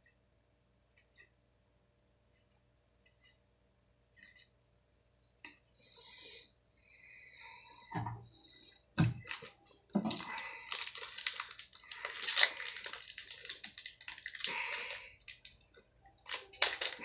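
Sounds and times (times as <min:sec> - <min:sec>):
foil wrapper crinkling and tearing: 0:09.2 - 0:17.0.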